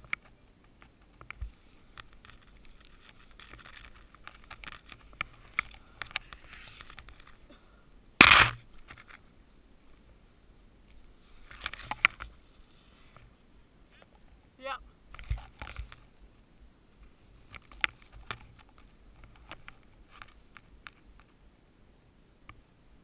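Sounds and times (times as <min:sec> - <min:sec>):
clicks and scrapes: 0:00.0 - 0:07.4, 0:08.2 - 0:09.2.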